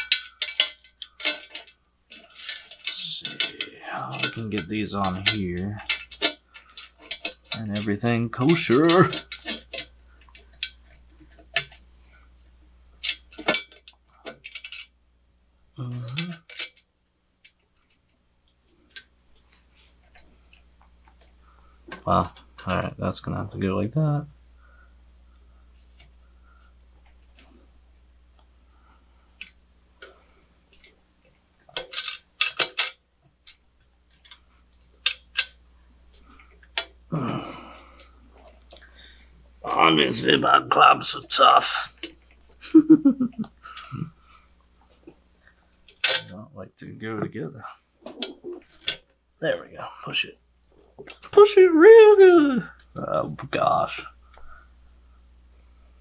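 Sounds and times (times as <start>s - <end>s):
metal parts knocking and clicking: 0.0s - 7.9s, 8.5s - 11.8s, 13.0s - 14.9s, 16.0s - 16.8s, 31.7s - 33.6s, 46.0s - 46.3s.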